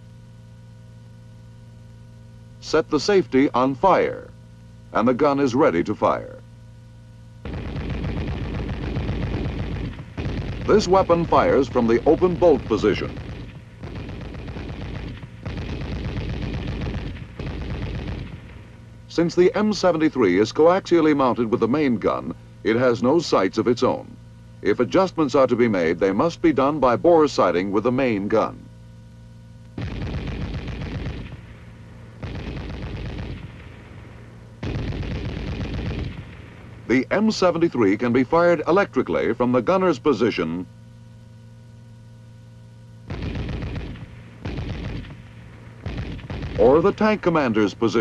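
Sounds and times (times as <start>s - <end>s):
machine gun firing bursts: 7.4s - 18.8s, 29.8s - 36.9s, 43.1s - 48.0s.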